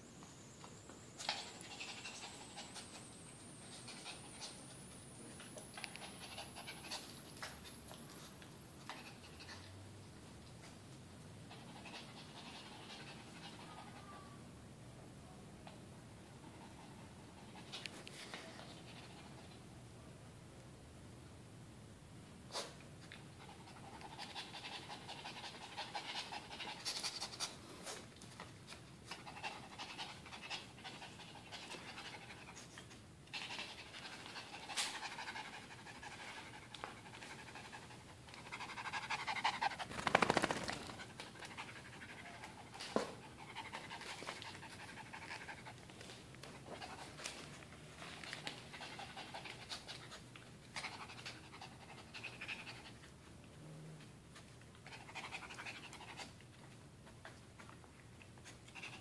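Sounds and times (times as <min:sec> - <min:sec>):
dog panting: 0:01.3 - 0:04.8, 0:05.6 - 0:09.9, 0:23.4 - 0:27.6.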